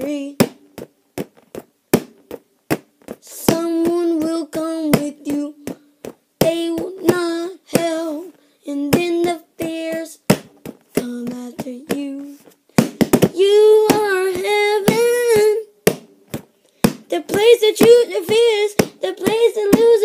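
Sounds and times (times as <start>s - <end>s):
child singing: 0.0s - 0.4s, 3.2s - 12.4s, 13.3s - 15.7s, 17.1s - 20.0s.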